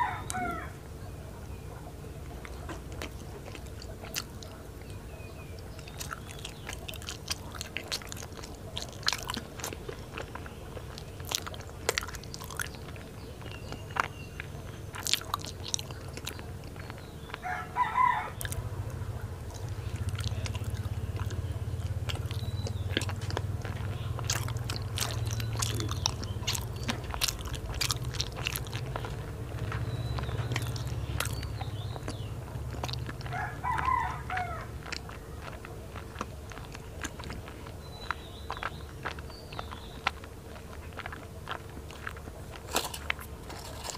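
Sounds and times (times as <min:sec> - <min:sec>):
rooster crowing: 0:00.0 - 0:00.8, 0:17.4 - 0:18.6, 0:33.2 - 0:34.8
chewing with wet mouth clicks: 0:01.5 - 0:43.9.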